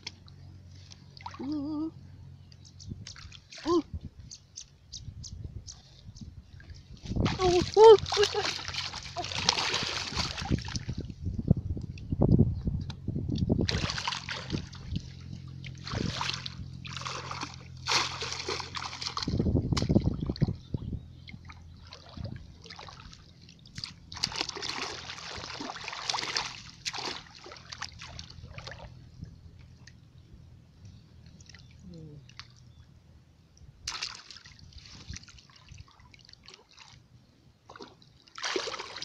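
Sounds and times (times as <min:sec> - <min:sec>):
muddy water splashing: 0:00.0 - 0:02.0, 0:03.0 - 0:03.9, 0:06.5 - 0:11.2, 0:13.4 - 0:30.0, 0:31.2 - 0:32.8, 0:33.8 - 0:39.0.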